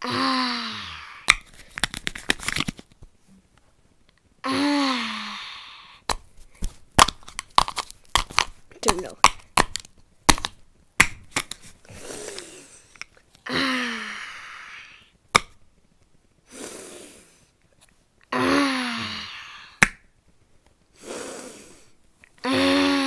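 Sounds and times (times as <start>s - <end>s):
child making breathy groans: 0.0s - 1.3s, 4.4s - 6.0s, 11.9s - 15.1s, 18.3s - 19.8s, 21.0s - 23.0s.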